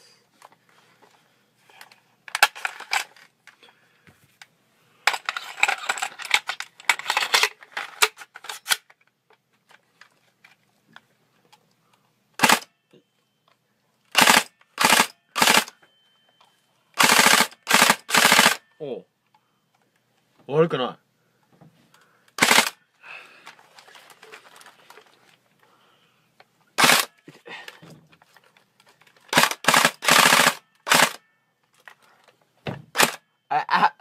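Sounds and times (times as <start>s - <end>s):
airsoft rifle full-auto bursts: 12.4s - 12.7s, 14.1s - 15.7s, 17.0s - 18.6s, 22.4s - 22.8s, 26.8s - 27.1s, 29.3s - 31.2s, 33.0s - 33.2s.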